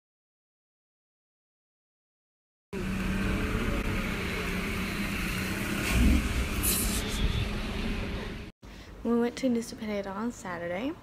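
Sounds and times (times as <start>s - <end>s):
speedboat engine droning: 2.8s - 8.5s.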